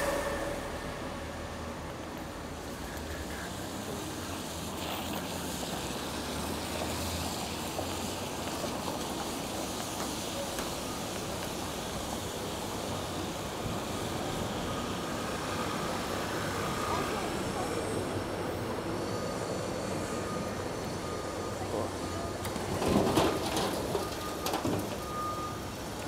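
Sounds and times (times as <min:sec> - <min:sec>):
low rumble: 0:00.0 - 0:03.1
bicycle tyres on wet streets: 0:00.0 - 0:26.0.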